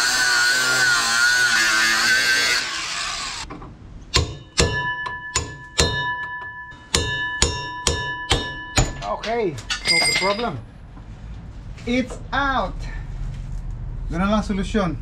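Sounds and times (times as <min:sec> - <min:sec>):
angle grinder cutting metal: 0:00.0 - 0:03.5
hammer striking steel punch: 0:04.1 - 0:10.3.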